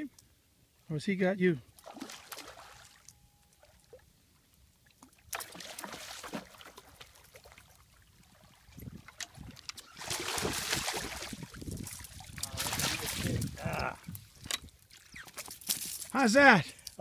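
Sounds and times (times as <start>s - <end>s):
fish thrashing and splashing: 5.3s - 7.7s, 8.3s - 13.6s.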